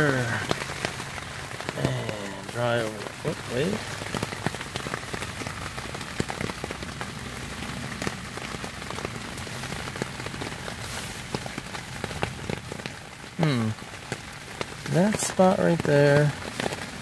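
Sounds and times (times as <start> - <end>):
rain on tent fabric: 0.0 - 17.0.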